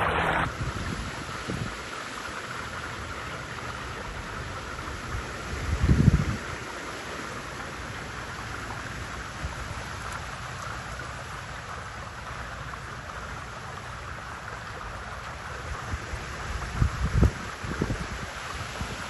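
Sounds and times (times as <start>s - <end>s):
wind rumble on microphone: 0.0s - 1.9s, 4.0s - 6.7s, 14.6s - 19.0s.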